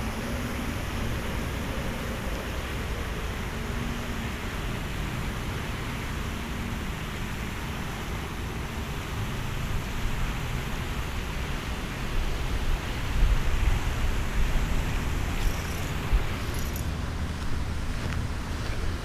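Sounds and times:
steady hiss: 0:00.0 - 0:19.0
wind buffeting microphone: 0:12.6 - 0:19.0.

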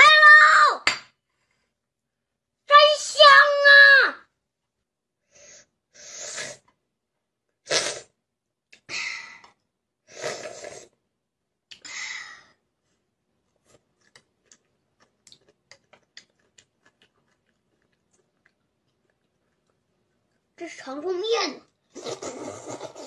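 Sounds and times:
child slurping food: 0:05.4 - 0:06.7, 0:07.6 - 0:08.2, 0:10.1 - 0:11.0, 0:21.9 - 0:23.0
soft clicking chewing: 0:13.6 - 0:20.6.

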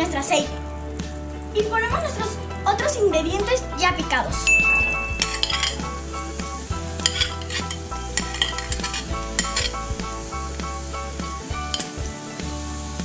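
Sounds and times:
background music: 0:00.0 - 0:13.0
vegetables sizzling in a pan: 0:00.1 - 0:13.0
metal spoon scraping ceramic plate: 0:05.1 - 0:05.9, 0:07.0 - 0:09.8, 0:11.7 - 0:12.0.

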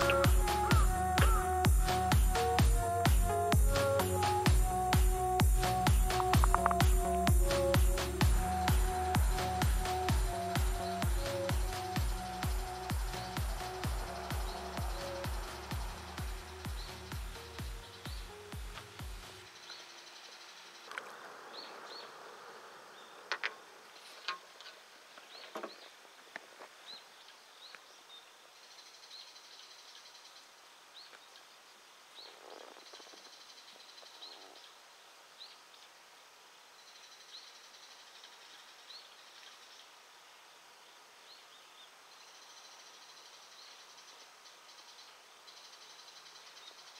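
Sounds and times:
sharp clicks and taps: 0:06.0 - 0:07.4.

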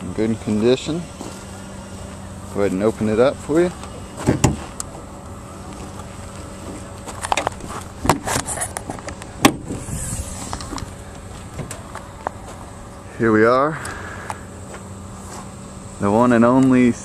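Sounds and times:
steady low hum: 0:00.0 - 0:17.0
hood latch clicks and clunks: 0:07.2 - 0:09.7.

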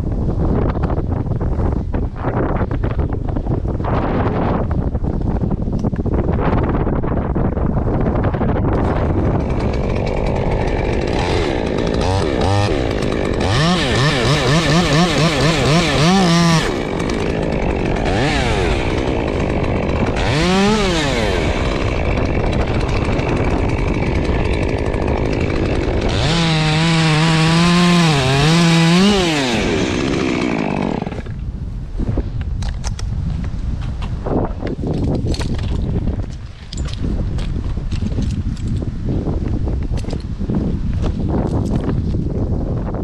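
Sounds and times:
wind on microphone: 0:00.0 - 0:43.0
chainsaw revving: 0:08.8 - 0:31.4.

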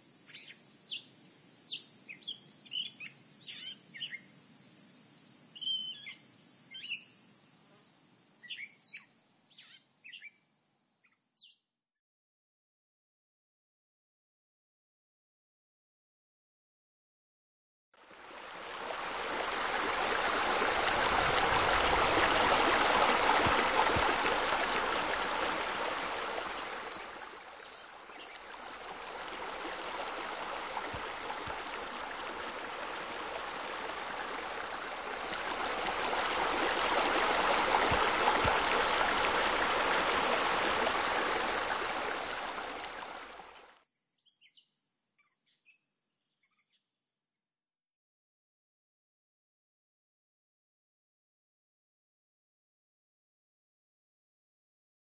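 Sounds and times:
running water rushing: 0:18.0 - 0:43.7.

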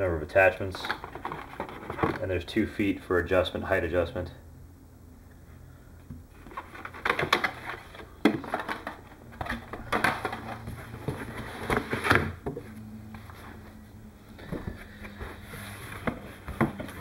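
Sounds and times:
packaging scrapes and rustles: 0:00.8 - 0:02.2, 0:06.4 - 0:12.4.

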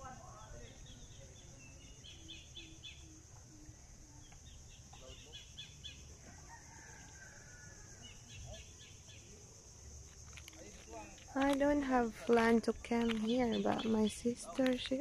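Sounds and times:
small birds chirping: 0:00.0 - 0:06.1, 0:08.0 - 0:15.0
distant rooster crowing: 0:06.1 - 0:08.6.

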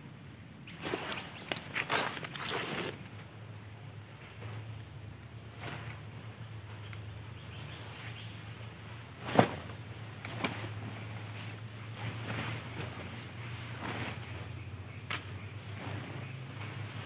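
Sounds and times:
high insect drone: 0:00.0 - 0:17.0
tarp snapping: 0:00.8 - 0:03.1, 0:09.2 - 0:14.4
tarp fabric rustling: 0:00.8 - 0:03.2, 0:05.5 - 0:06.8, 0:08.5 - 0:14.6, 0:15.6 - 0:17.0.

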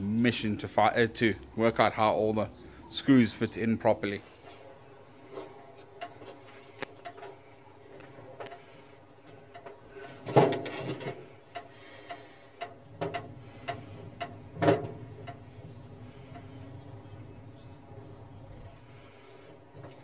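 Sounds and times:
hand tools clicking and knocking: 0:05.4 - 0:15.5.

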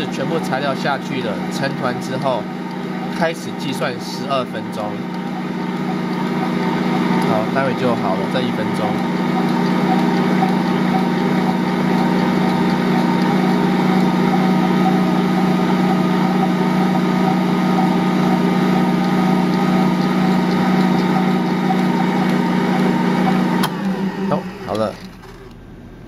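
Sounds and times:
stand mixer motor hum: 0:00.0 - 0:26.0.

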